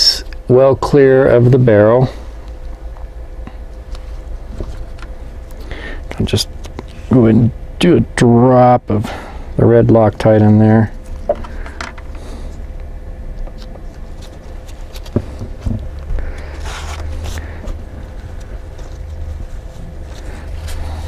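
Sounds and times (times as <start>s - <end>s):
steady low hum: 0.0s - 21.0s
gloved hands clicking and rustling: 13.4s - 21.0s.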